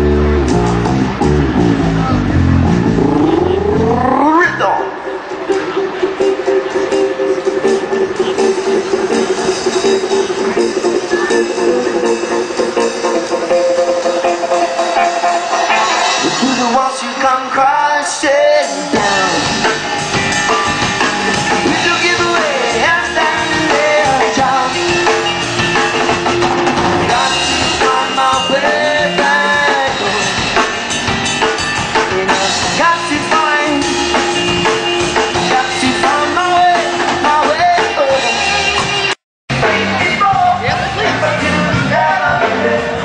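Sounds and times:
live rock band playing: 0.0 - 43.0
man singing: 16.2 - 19.8, 21.5 - 25.4, 27.0 - 30.8, 31.9 - 34.4, 35.2 - 38.7, 39.5 - 43.0.

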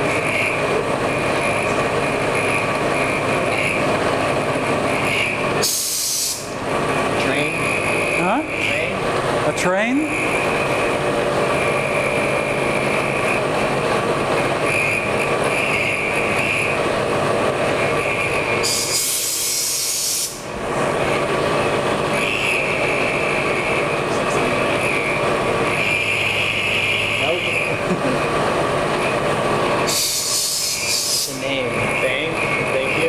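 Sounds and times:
milling machine cutting whine: 0.0 - 33.0
air nozzle hissing blast: 5.6 - 6.6, 18.6 - 20.4, 29.9 - 31.4.

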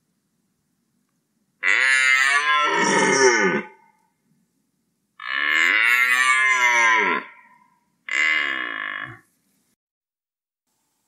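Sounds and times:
deer stag roaring: 1.6 - 3.8, 5.2 - 7.5, 8.1 - 9.2.

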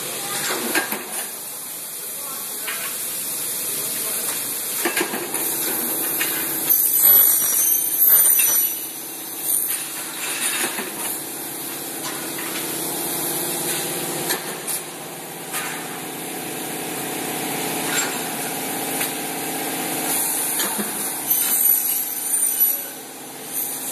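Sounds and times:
saw screeching through aluminium: 21.3 - 22.9.

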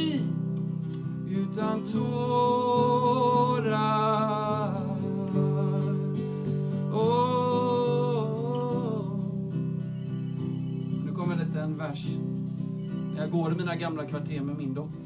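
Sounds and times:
man singing: 0.0 - 0.4, 1.2 - 9.7
strummed acoustic guitar: 0.0 - 15.0.

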